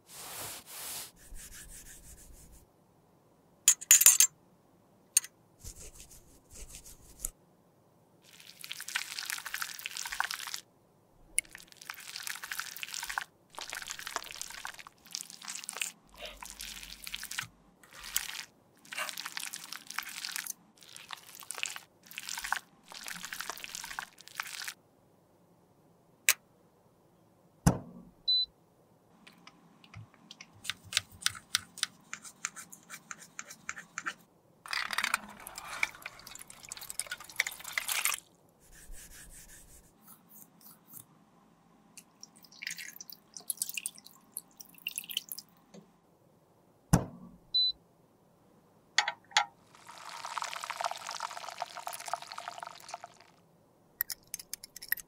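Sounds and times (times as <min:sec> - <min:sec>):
scraping in glass beaker: 0:33.2 - 0:39.6.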